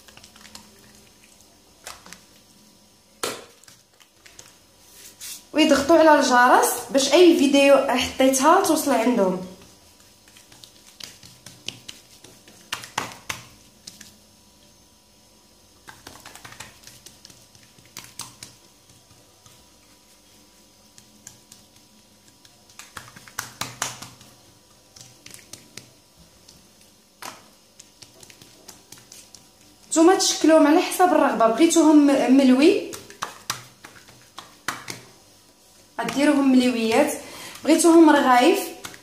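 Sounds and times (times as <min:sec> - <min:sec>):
fingers tapping on countertop: 0:10.3 - 0:14.1, 0:15.8 - 0:19.6, 0:22.4 - 0:24.4, 0:32.8 - 0:35.1.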